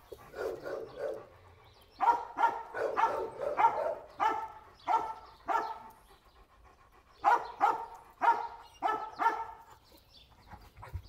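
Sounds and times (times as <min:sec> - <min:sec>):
dog barking: 0:00.3 - 0:01.3, 0:02.0 - 0:05.9, 0:07.2 - 0:09.6.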